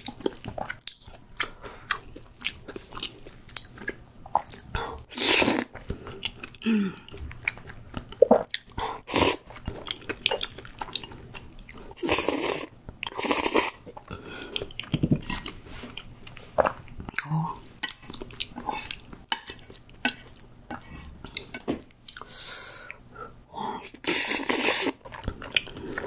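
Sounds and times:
soft wet chewing: 0.0s - 5.1s, 5.7s - 8.8s, 12.9s - 22.3s, 24.9s - 26.0s
slurping spaghetti: 12.0s - 13.8s, 23.9s - 26.0s.

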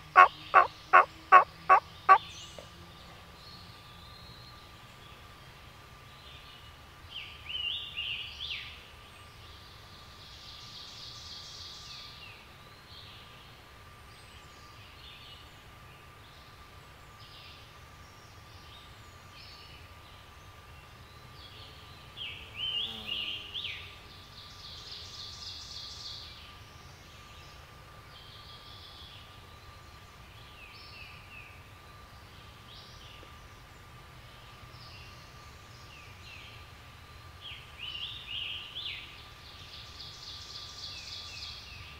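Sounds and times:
birds calling and singing: 0.0s - 5.3s
rattling bird call: 0.1s - 2.2s.

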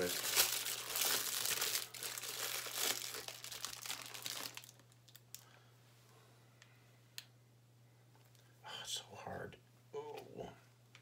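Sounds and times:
plastic wrapping crinkling: 0.0s - 5.5s.

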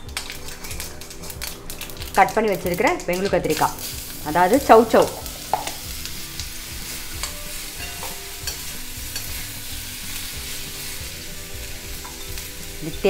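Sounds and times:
vegetables sizzling in hot oil: 0.0s - 13.0s
spatula scraping and clicking on pan: 5.4s - 11.0s, 11.8s - 12.8s.

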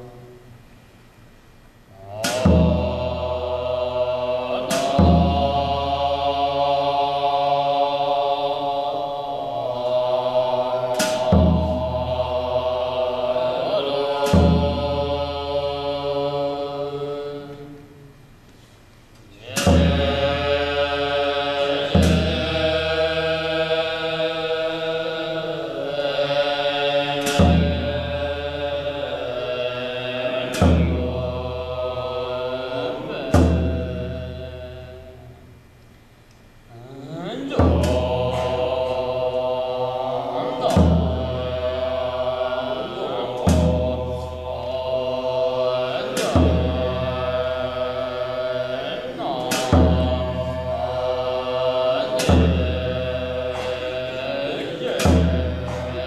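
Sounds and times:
drum strikes: 2.0s - 8.2s, 9.4s - 16.5s, 19.4s - 35.6s, 37.4s - 56.0s
long horns droning: 2.0s - 18.0s, 36.7s - 56.0s
cymbals crashing: 10.2s - 17.0s, 37.4s - 56.0s.

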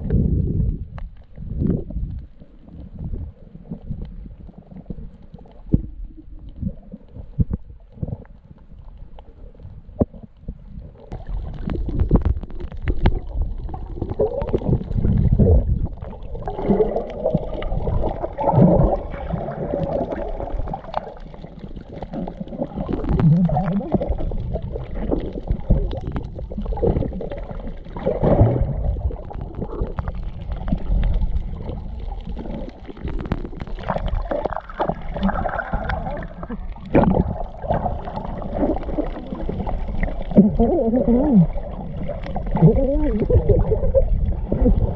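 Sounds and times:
gurgling bubbles: 0.0s - 44.9s
muffled underwater rumbling: 0.0s - 44.9s
underwater clicks and knocks: 6.6s - 19.1s, 19.8s - 40.6s.

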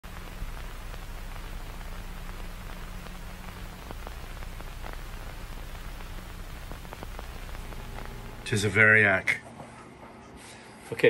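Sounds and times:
low hum: 0.0s - 8.6s
faint crackles: 0.0s - 8.8s
static-like hiss: 0.0s - 9.4s.

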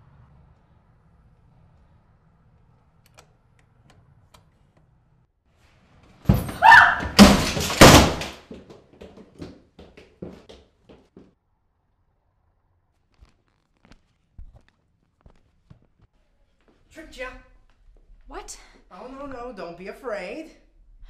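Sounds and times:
heavy knocks and bangs: 6.3s - 9.6s.

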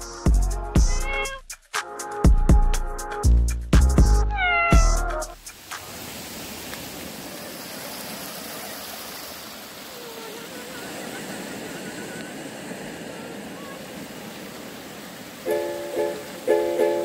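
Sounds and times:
stream rushing over rocks: 5.5s - 17.0s.

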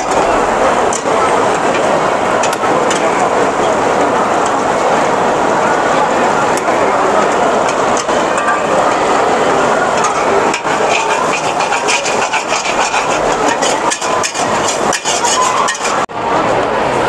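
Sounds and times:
metal utensils scraping a wok: 10.0s - 16.1s
steady sizzle: 10.1s - 16.1s.

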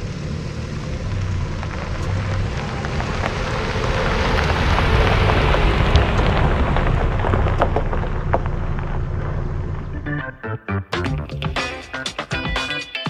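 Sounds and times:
gravel crackling under tyres: 0.0s - 10.3s
pickup truck engine running: 0.0s - 10.4s.

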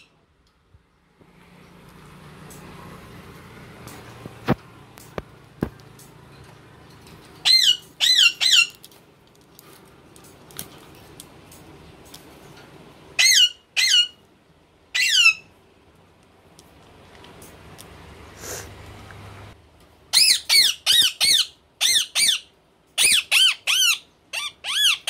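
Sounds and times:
parakeet squawks: 7.4s - 8.8s, 13.2s - 14.2s, 14.9s - 15.5s, 20.1s - 25.0s.

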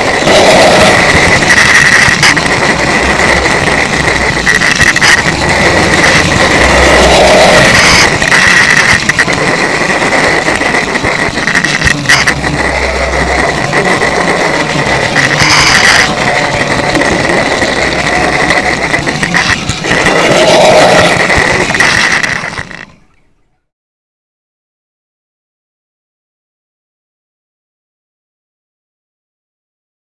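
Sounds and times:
model train motor whine: 0.0s - 23.1s
wheels clicking on track: 0.0s - 23.6s.

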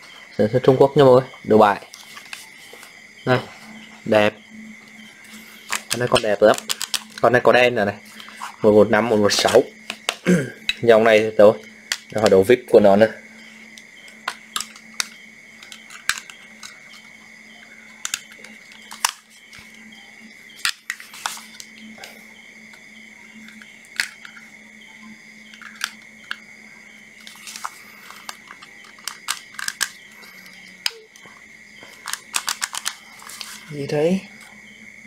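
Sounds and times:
faint hum: 0.0s - 35.0s
plastic clicks and knocks: 5.7s - 7.2s, 9.8s - 10.2s, 14.2s - 17.0s, 18.0s - 19.7s, 27.2s - 30.0s, 30.8s - 33.5s.

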